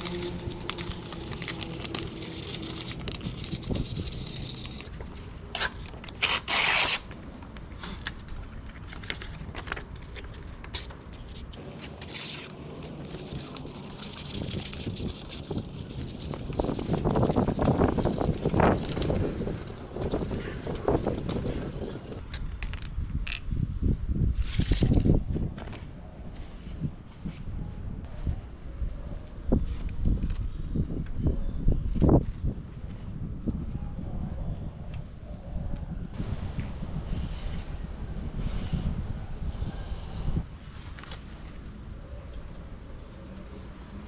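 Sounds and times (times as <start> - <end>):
cloth scrubbing exhaust pipe: 0.0 - 4.9, 11.6 - 22.2.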